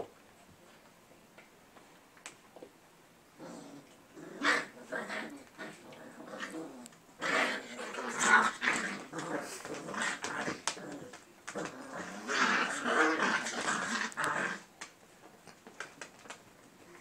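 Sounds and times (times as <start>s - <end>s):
puppies growling and whimpering: 3.4s - 14.7s.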